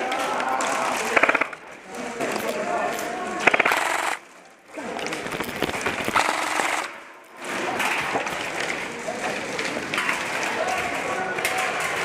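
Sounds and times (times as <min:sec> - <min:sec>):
airsoft gun full-auto burst: 0:01.0 - 0:01.6, 0:03.4 - 0:04.2, 0:05.2 - 0:07.0.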